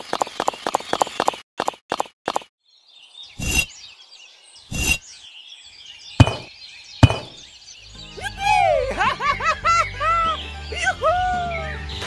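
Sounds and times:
birds chirping: 2.6s - 12.0s
sharp knocks: 6.2s - 7.4s.

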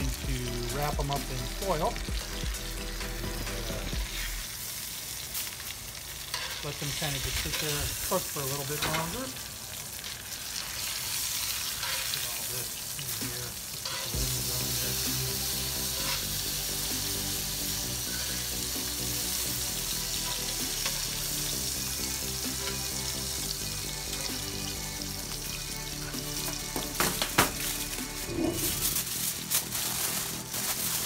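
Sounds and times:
background music: 0.0s - 4.5s, 13.2s - 31.0s
butter and oil sizzling: 0.0s - 31.0s.

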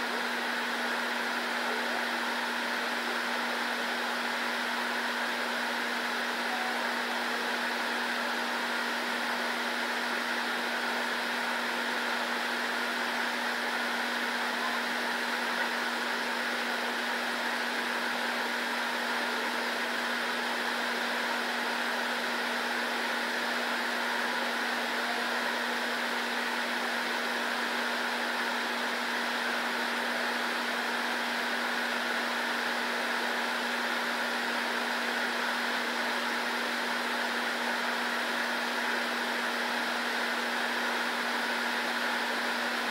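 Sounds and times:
fan whirring: 0.0s - 42.9s.

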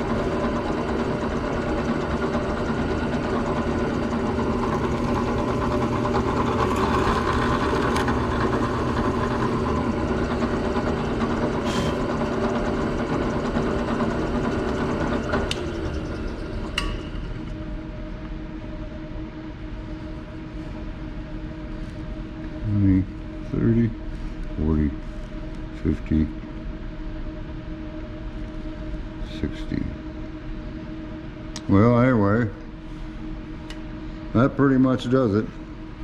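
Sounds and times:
electric drill boring wood: 0.0s - 16.9s.

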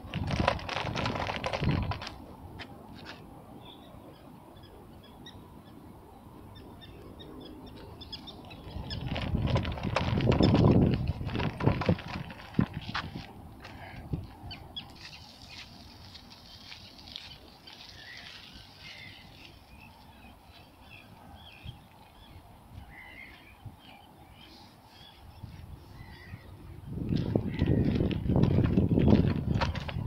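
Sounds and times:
small birds chirping and singing: 3.6s - 11.1s, 13.8s - 30.0s.

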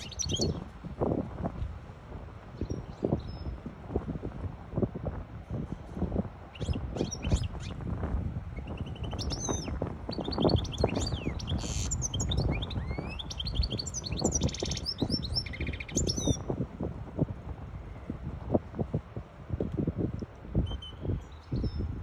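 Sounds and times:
finch singing twittering song: 0.0s - 0.6s, 6.5s - 7.8s, 8.6s - 16.5s, 20.6s - 21.9s.

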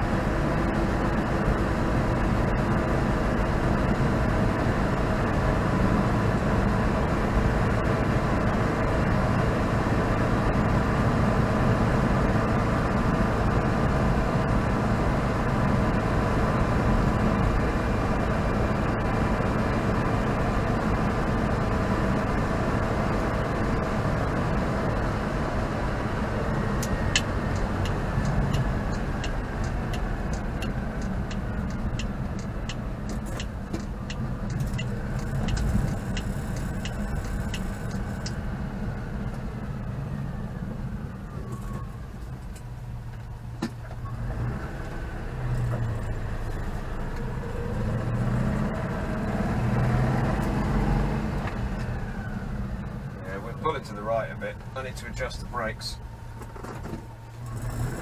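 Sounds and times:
car engine running: 0.0s - 58.0s
road noise: 0.0s - 58.0s
quick regular ticks: 26.8s - 38.4s.

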